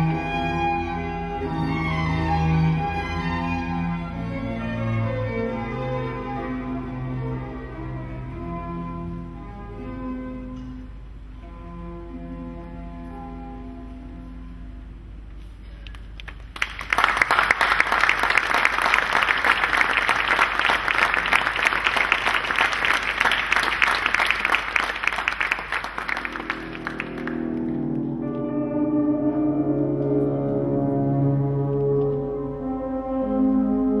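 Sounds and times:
slow music with low notes: 0.0 - 15.6, 26.3 - 34.0
audience applauding: 15.9 - 27.8.

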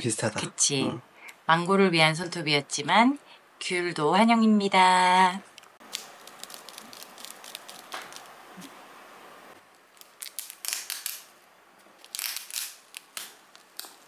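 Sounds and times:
packaging crinkling and rustling: 5.8 - 8.7, 9.8 - 14.0.

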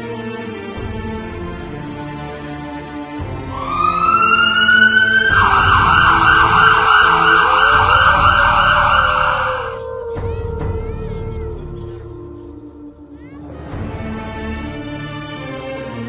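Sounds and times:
background music: 0.0 - 16.0
ambulance siren wailing: 3.5 - 10.9.

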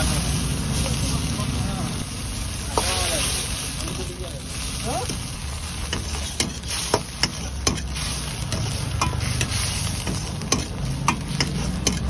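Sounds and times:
oil sizzling: 0.0 - 12.0
steel ladle clanking against wok: 5.8 - 12.0.

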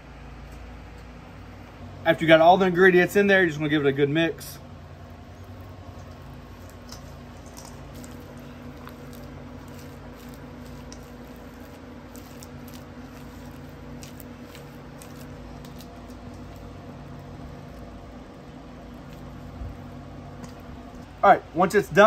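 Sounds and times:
steady low hum: 0.0 - 22.0
spatula mixing thick mixture: 4.6 - 21.2.

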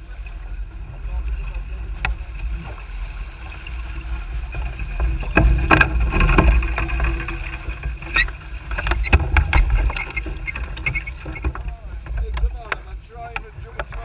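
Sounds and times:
sharp knocks and clicks from boat: 0.0 - 14.0
water rushing along a hull: 0.0 - 14.0.

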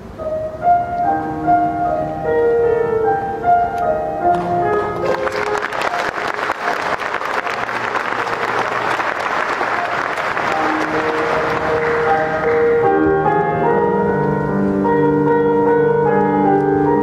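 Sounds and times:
held piano notes: 0.0 - 17.0
audience applauding: 4.7 - 12.9.

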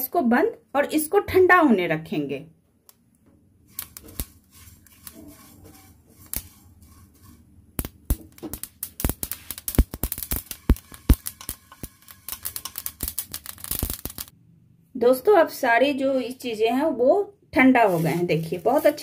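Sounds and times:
spatula scraping pan: 4.0 - 7.6, 10.6 - 12.8, 17.8 - 19.0
seeds clicking and rattling: 7.8 - 14.3.

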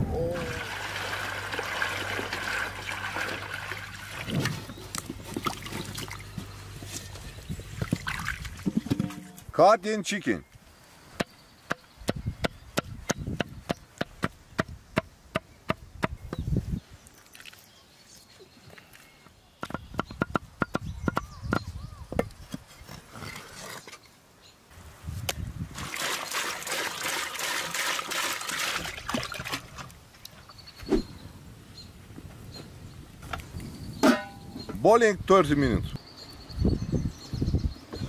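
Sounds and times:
water pouring into metal pot: 0.4 - 4.4, 25.8 - 29.5.

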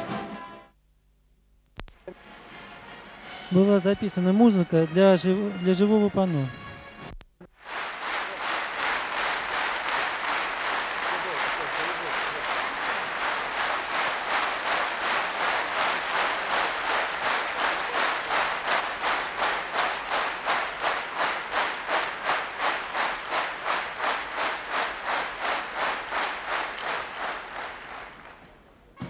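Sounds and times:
crowd clapping in unison: 7.5 - 28.6.

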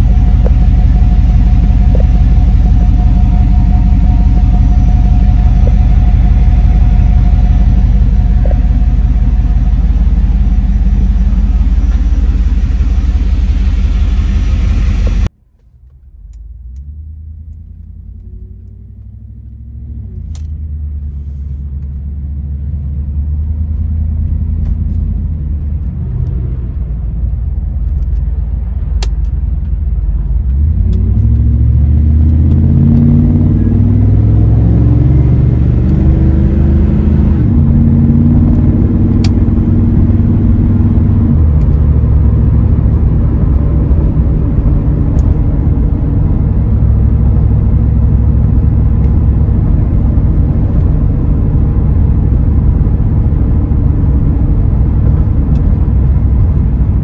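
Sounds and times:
car engine idling loudly: 0.0 - 15.3, 33.5 - 57.0
car engine accelerating: 0.0 - 57.0.

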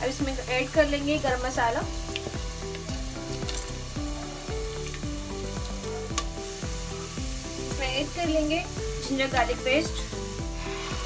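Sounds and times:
quiet background music: 0.0 - 11.0
spices and onions sizzling in oil: 0.0 - 11.0.

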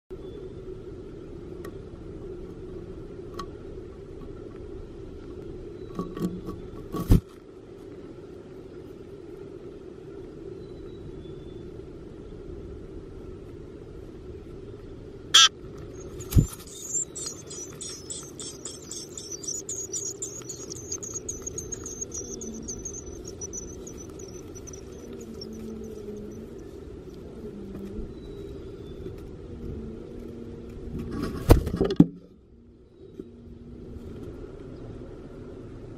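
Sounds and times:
steady low hum: 0.1 - 35.9
nestlings begging chirps: 15.4 - 26.8.

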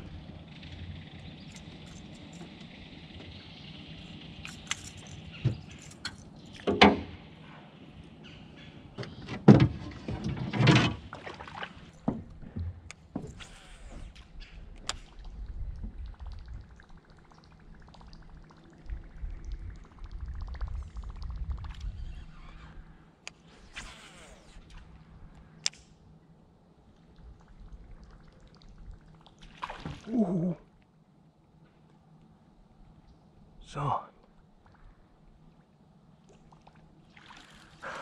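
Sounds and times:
knocks and thumps on boat: 9.0 - 11.4, 12.0 - 13.4.

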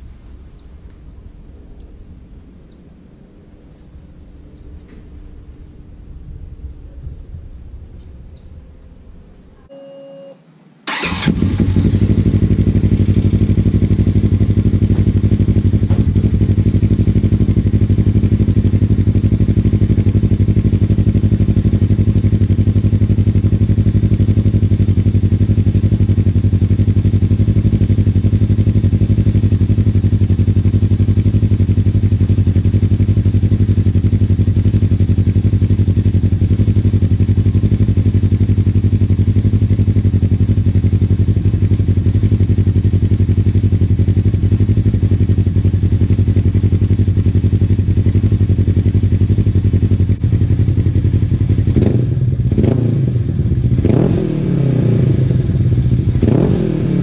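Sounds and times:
engine idling: 10.9 - 52.5.

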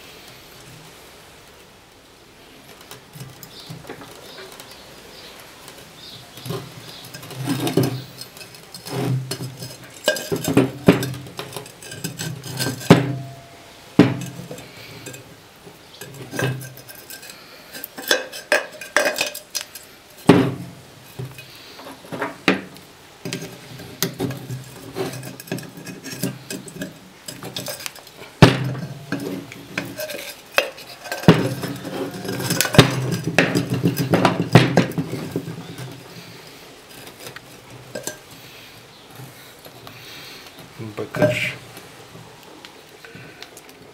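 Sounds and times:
metal parts clinking and scraping: 6.4 - 15.3, 16.0 - 22.5, 23.3 - 36.3, 36.9 - 38.3
sharp metal knocks: 9.1 - 14.6, 20.2 - 21.4, 28.4 - 35.7.

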